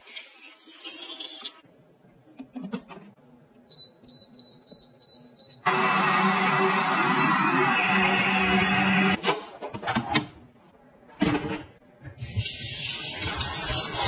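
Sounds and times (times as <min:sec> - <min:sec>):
blender motor running: 0:05.7 - 0:09.2.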